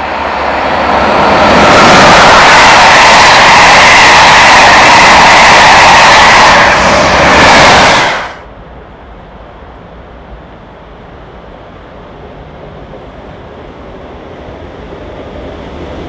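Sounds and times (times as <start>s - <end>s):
locomotive passing with roar: 0.0s - 8.5s.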